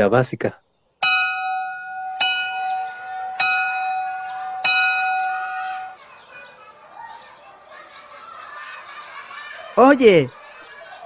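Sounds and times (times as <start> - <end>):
faint chirping: 0.5 - 11.0
school bell ringing: 1.0 - 6.6.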